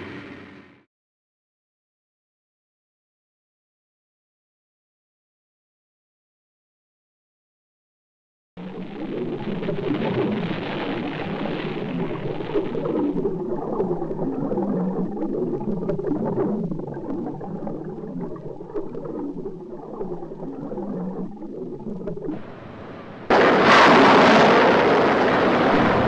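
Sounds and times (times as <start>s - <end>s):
small crackles: 8.6s - 22.4s
underwater bubbles gurgling: 8.6s - 22.5s.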